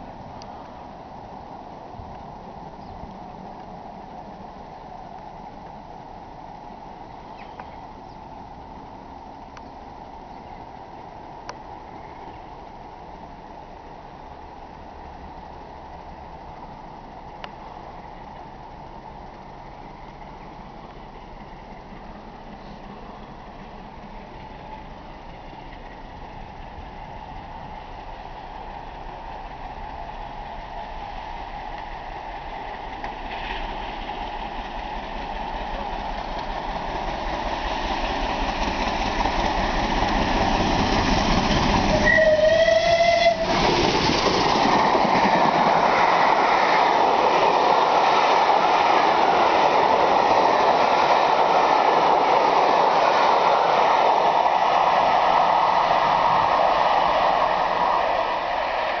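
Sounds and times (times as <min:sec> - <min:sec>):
steam train rumble: 0:00.0 - 0:59.0
steam whistle blast: 0:41.9 - 0:43.6.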